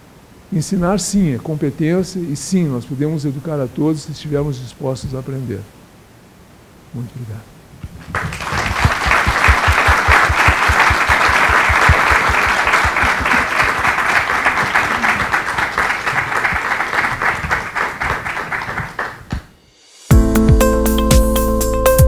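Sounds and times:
audience applauding: 0:08.0 - 0:19.5.

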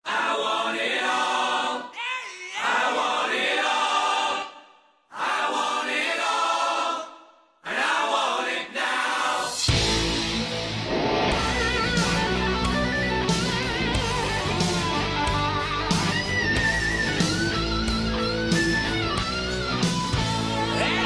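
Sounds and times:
choir singing held chords: 0:00.0 - 0:02.0, 0:02.6 - 0:10.2.

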